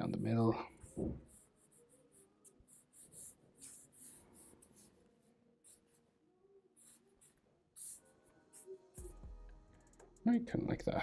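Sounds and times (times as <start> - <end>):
marker pen strokes on paper: 0.8 - 6.1, 6.8 - 9.1.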